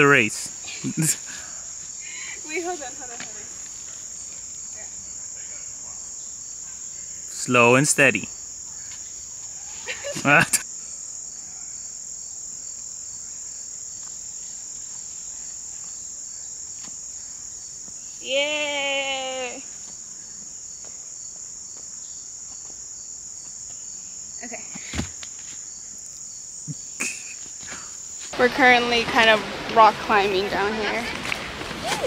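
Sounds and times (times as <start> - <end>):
insects buzzing trill: 0.0 - 32.0
thump: 24.7 - 25.2.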